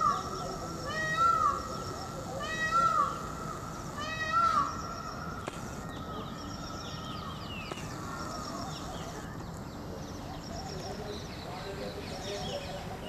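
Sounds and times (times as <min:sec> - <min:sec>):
peafowl calling: 0:00.0 - 0:06.3
small birds chirping: 0:00.0 - 0:13.0.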